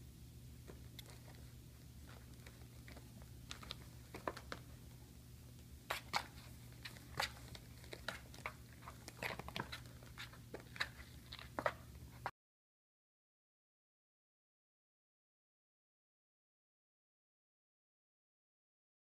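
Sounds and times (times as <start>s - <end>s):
steady low hum: 0.0s - 12.3s.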